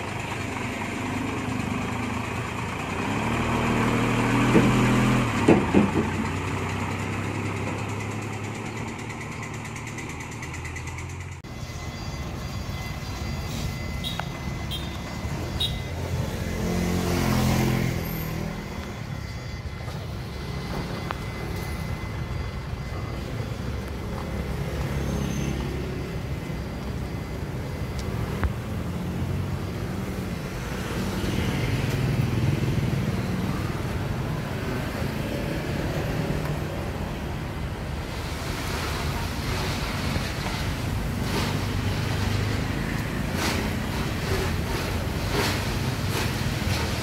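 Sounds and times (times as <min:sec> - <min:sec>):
cars and scooters passing: 0:00.0 - 0:47.0
truck engine running: 0:00.0 - 0:47.0.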